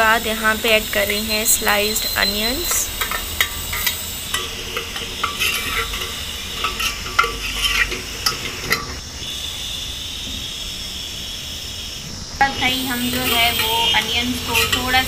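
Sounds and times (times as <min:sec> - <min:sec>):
onions sizzling in oil: 0:00.0 - 0:15.0
metal ladle scraping a pot: 0:00.6 - 0:09.0, 0:13.0 - 0:15.0.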